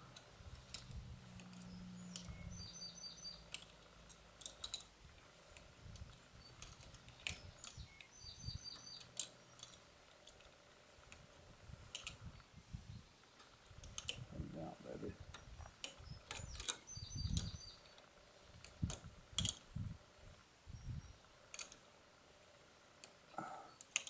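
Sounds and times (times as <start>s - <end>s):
bird chirping rapidly: 1.6s - 3.5s, 7.4s - 9.6s, 16.0s - 17.9s
wrench clicking on metal nut: 21.5s - 21.8s, 23.8s - 24.0s.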